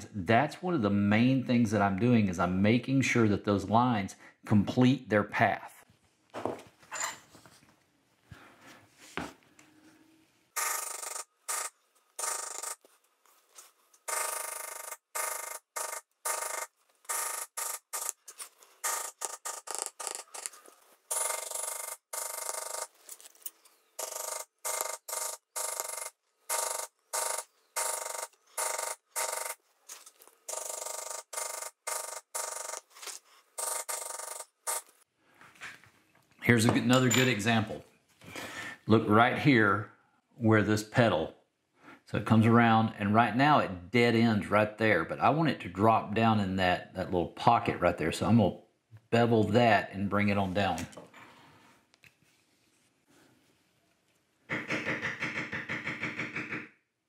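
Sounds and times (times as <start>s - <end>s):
maul tapping leather tool: 54.5s - 56.8s.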